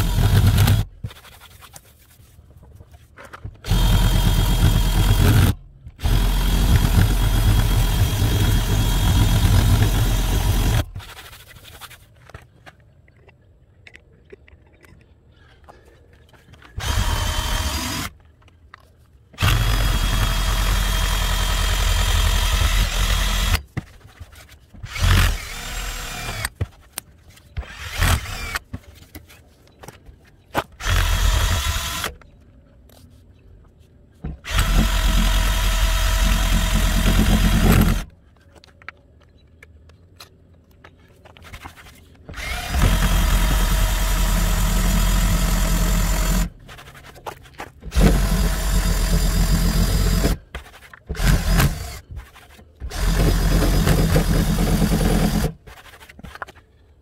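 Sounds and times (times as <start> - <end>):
cordless drill spinning eraser wheel: 0.0 - 1.5, 3.7 - 11.9, 16.8 - 18.1, 24.9 - 26.6, 30.8 - 32.1, 42.3 - 46.9, 47.9 - 56.4.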